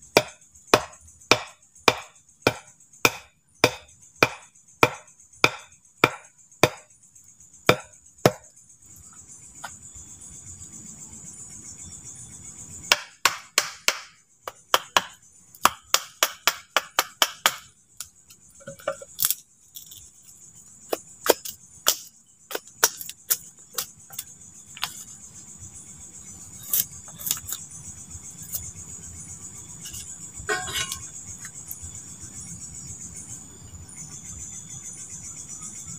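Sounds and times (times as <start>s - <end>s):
night insects droning: 0.0s - 35.9s
machete chopping wood: 0.2s - 6.8s, 7.7s - 8.4s, 12.9s - 17.7s, 20.9s - 24.2s.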